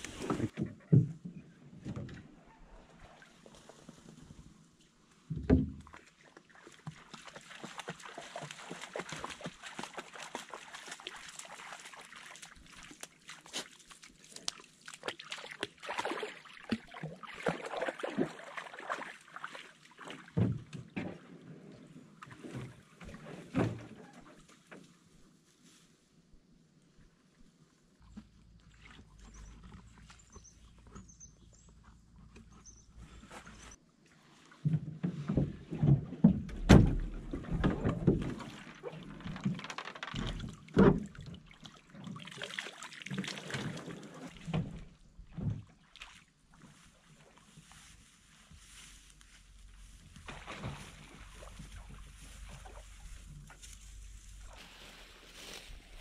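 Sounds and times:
rustling and small clicks: 39.0s - 40.6s.

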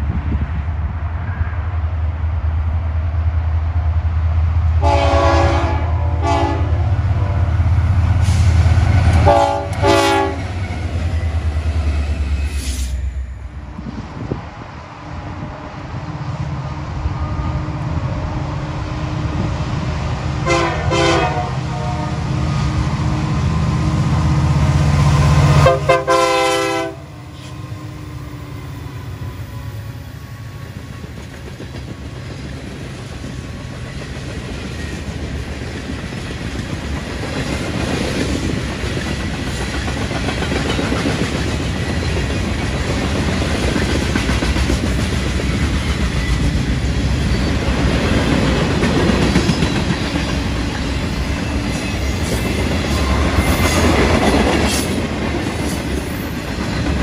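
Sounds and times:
train cars rolling on rails: 0.0s - 57.0s
train horn blasts: 4.8s - 7.6s, 8.2s - 10.5s, 17.0s - 18.4s, 20.4s - 24.0s, 25.3s - 28.3s.

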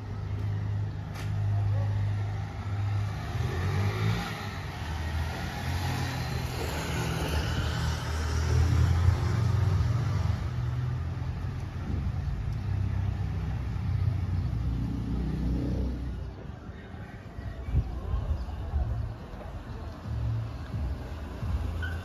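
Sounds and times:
motorcycle passing: 0.0s - 16.4s
car passing: 0.0s - 17.1s.

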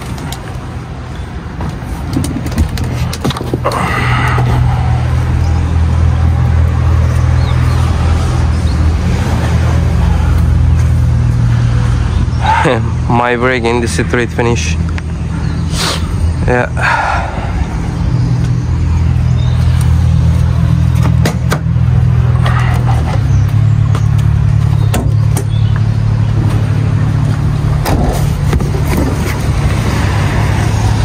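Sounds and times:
vehicle engine idling: 3.6s - 29.8s.

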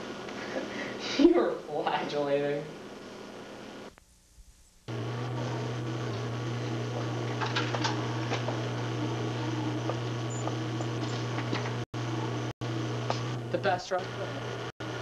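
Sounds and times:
electrical hum with hiss: 0.0s - 15.0s.

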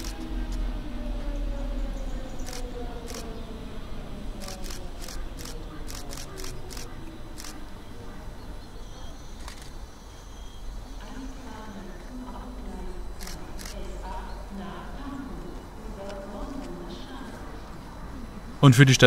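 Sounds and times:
electric train rumbling and whining: 0.0s - 18.6s
camera shutters clicking: 4.4s - 7.6s.

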